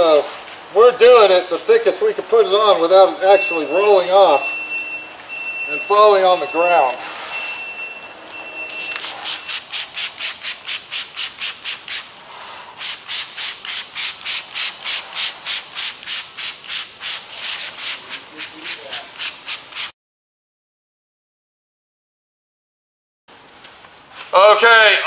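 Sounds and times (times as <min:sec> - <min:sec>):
hissing paintbrush strokes: 0:08.7 - 0:19.9.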